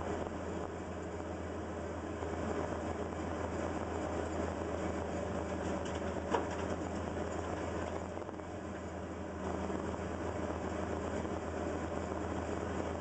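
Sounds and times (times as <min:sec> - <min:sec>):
excavator diesel engine running: 0:00.0 - 0:13.0.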